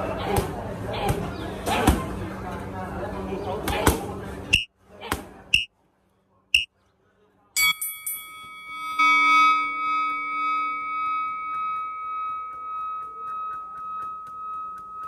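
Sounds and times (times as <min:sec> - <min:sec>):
bell-like metallic tone ringing: 0:07.6 - 0:15.0.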